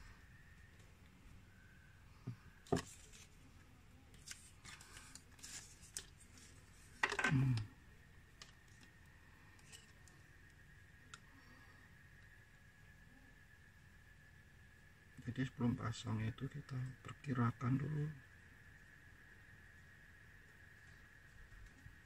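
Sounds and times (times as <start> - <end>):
plastic packaging rustling: 4.1 - 7.2.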